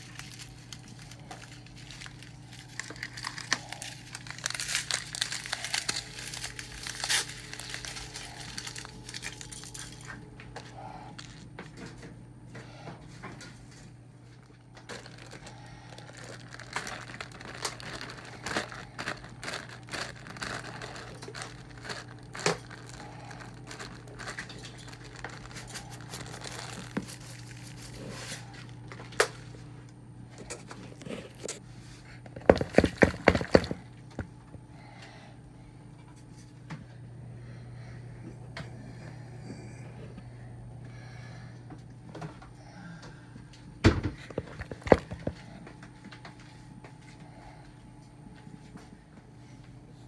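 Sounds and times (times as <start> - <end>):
packaging crinkling and rustling: 0.0 - 11.6, 13.6 - 29.6, 32.2 - 34.4, 44.2 - 46.4
steady low hum: 0.0 - 50.0.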